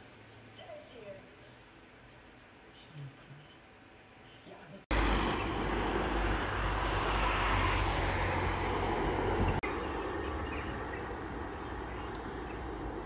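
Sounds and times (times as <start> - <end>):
city street traffic rumble: 4.9 - 13.0.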